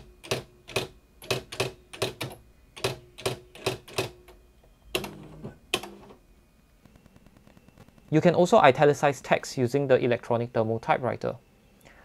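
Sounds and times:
electronic typewriter strikes: 0.0s - 6.1s.

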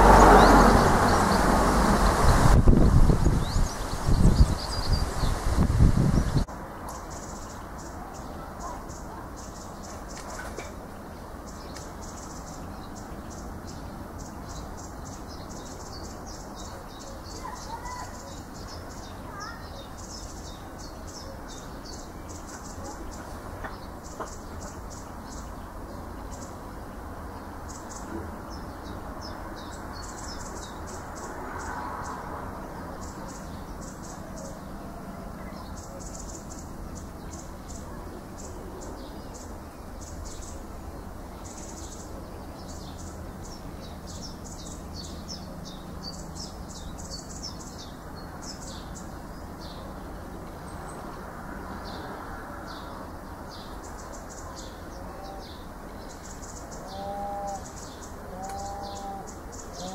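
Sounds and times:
steady low background noise: 3.5s - 59.9s.

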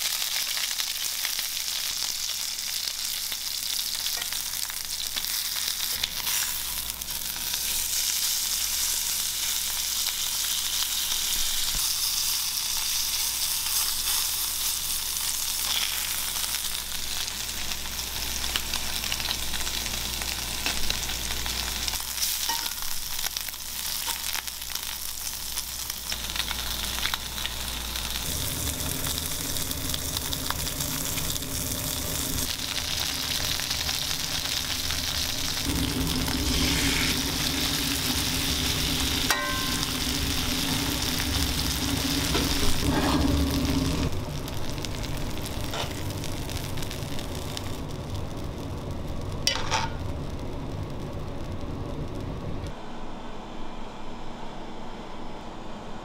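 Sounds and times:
meat sizzling in a frying pan: 0.0s - 52.7s
steady low hum: 15.5s - 56.0s.

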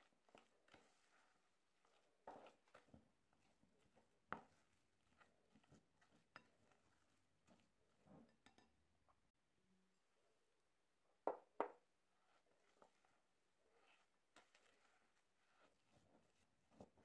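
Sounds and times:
spatula scraping a bowl: 0.3s - 8.6s, 12.2s - 17.0s.

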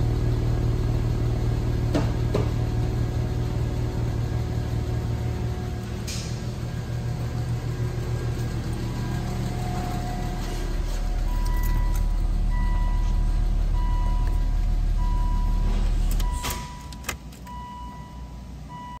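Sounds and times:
car engine idling: 0.0s - 18.9s
dashboard warning chime beeping: 9.2s - 19.0s.

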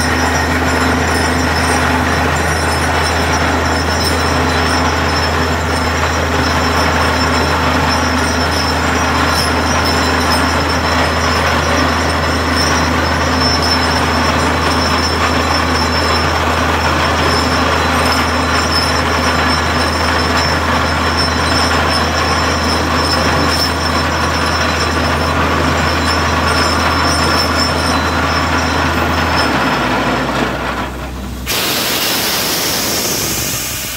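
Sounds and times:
drilling rig machine drone: 0.0s - 33.9s
compressed air rushing water: 31.4s - 33.9s.

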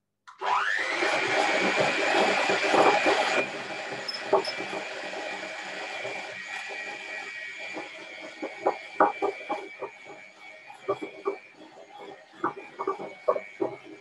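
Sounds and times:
electric hand mixer whining: 0.3s - 14.0s.

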